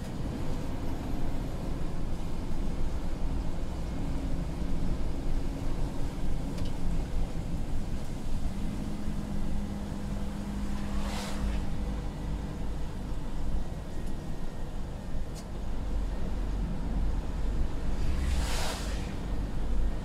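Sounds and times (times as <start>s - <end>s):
diesel lorry engine running: 0.0s - 20.0s
tyres rumbling on wet road: 0.0s - 20.0s
brief hiss: 10.8s - 11.8s, 18.0s - 19.4s.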